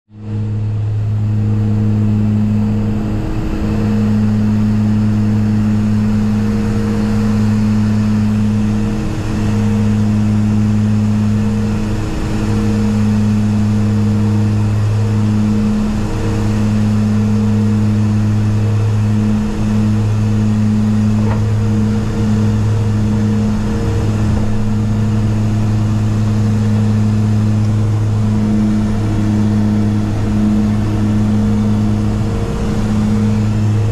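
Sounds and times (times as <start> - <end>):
turboprop cockpit drone: 0.1 - 33.9.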